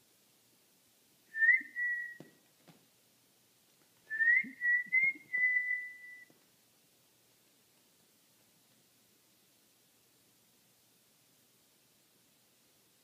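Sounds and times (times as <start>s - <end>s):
whistled notes: 1.3s - 2.3s, 4.1s - 6.3s.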